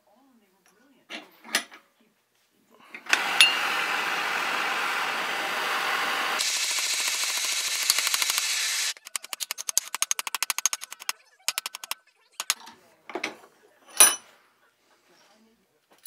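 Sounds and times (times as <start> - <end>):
gas torch hissing: 3.0 - 9.0.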